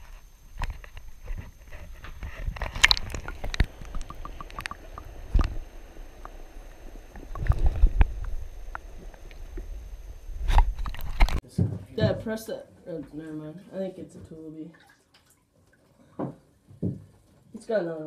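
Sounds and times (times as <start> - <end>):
water sloshing and gurgling: 0.0 - 11.4, 14.6 - 16.6.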